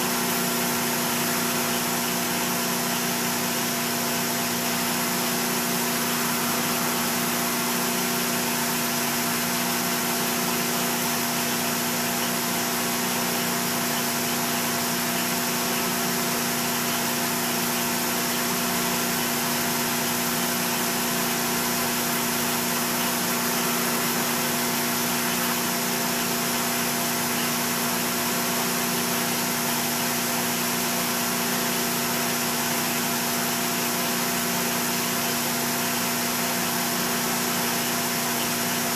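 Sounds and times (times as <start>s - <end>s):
metal lathe cutting hum: 0.0s - 38.9s.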